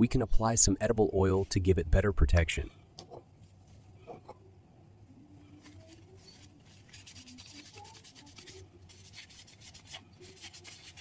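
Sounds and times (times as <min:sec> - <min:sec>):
paper towel rubbing a lid: 0:05.6 - 0:11.0.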